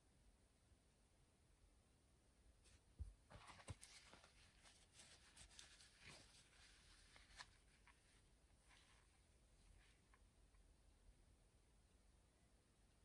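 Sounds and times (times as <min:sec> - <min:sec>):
cloth rubbing on pen: 0:02.7 - 0:10.1.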